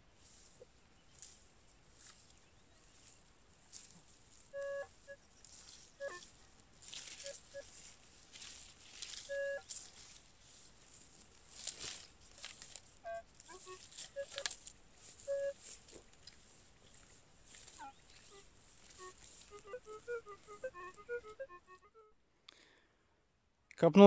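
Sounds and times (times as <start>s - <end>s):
grass rustling: 0.0s - 22.0s
footsteps in vegetation: 0.1s - 21.8s
metal detector beeps: 6.0s - 6.2s, 9.1s - 9.7s, 12.4s - 14.6s, 15.2s - 15.7s, 17.8s - 18.4s.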